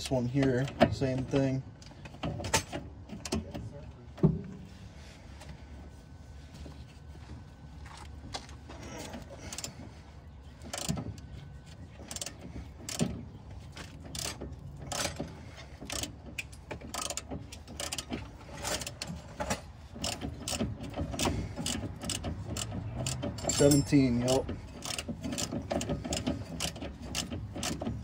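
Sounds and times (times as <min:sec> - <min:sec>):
hand ratchet clicking: 0:12.1 - 0:13.1, 0:14.1 - 0:19.0, 0:20.0 - 0:28.0.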